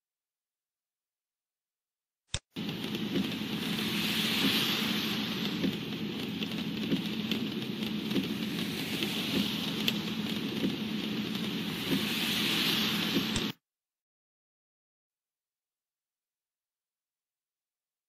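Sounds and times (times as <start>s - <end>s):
engine and tyres hum: 2.6s - 13.4s
rain and wet road hiss: 2.6s - 13.5s.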